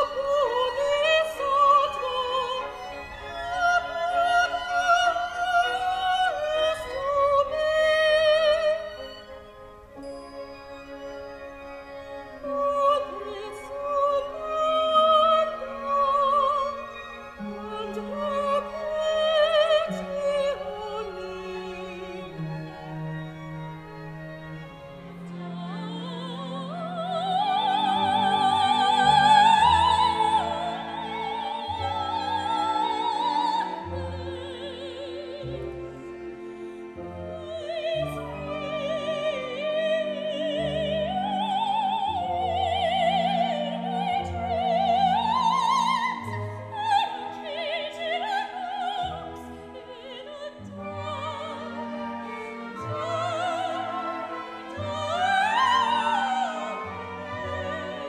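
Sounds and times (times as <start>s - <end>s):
orchestra playing: 0.0s - 58.0s
soprano singing opera: 0.0s - 58.0s.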